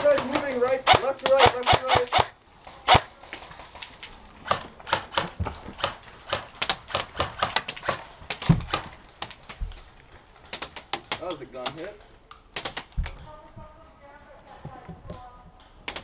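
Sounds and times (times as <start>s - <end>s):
airsoft gun cracks: 12.5s - 13.0s.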